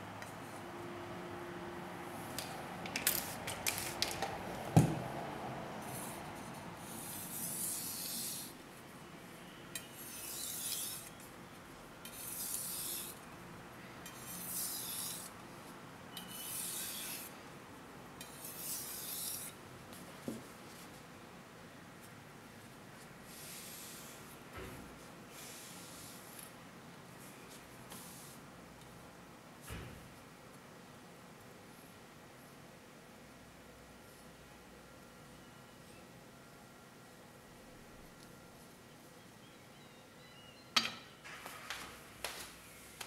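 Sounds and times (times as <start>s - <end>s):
knife strokes on whetstone: 6.8s - 8.6s, 9.9s - 11.1s, 12.1s - 13.2s.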